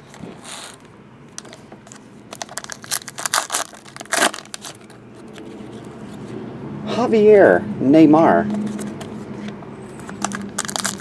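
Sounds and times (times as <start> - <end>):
foil wrapper tearing and crinkling: 2.3 - 5.0, 10.1 - 11.0.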